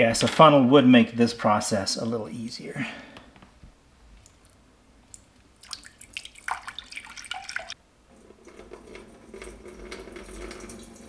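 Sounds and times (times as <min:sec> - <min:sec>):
water splashing into a cup: 0:05.1 - 0:07.8
water trickling into an opening: 0:05.6 - 0:11.0.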